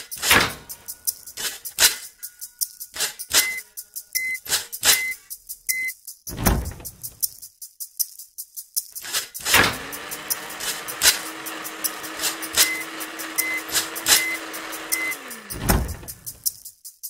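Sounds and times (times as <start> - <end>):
music beat with clicks: 0.0 - 17.0
short high beeps: 3.4 - 5.9
electric blender motor: 9.4 - 16.4.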